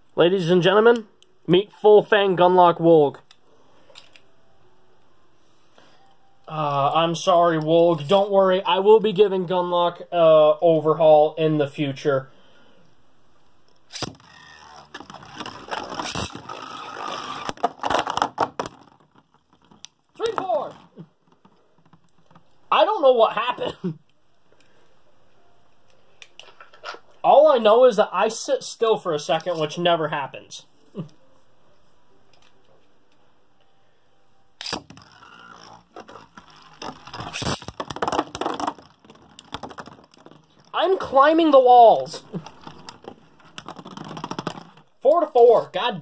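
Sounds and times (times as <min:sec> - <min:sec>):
spinning tops whirring and scraping: 0:13.9 - 0:18.2, 0:34.6 - 0:41.2
spinning tops launch crack: 0:37.1 - 0:38.9.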